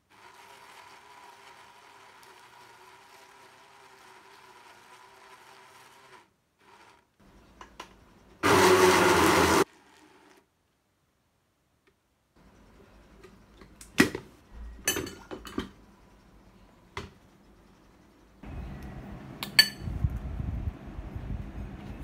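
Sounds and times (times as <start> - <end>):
blender motor chopping: 0.1 - 7.1, 8.4 - 10.4.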